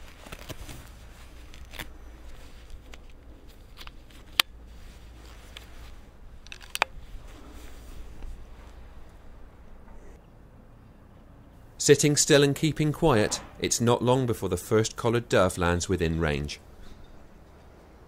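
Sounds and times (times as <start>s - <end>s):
rustling of gloves and clothing: 0.0s - 10.2s
air rifle mechanical clicks: 6.4s - 7.0s.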